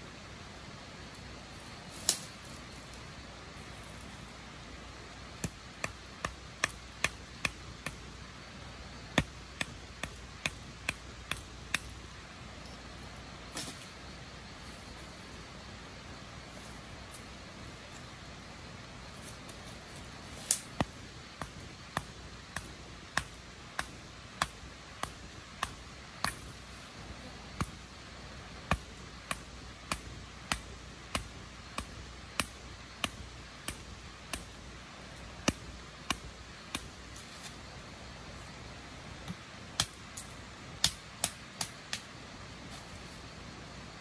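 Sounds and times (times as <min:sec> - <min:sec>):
sharp knocks at ground level: 0:09.0 - 0:12.0, 0:20.4 - 0:26.7.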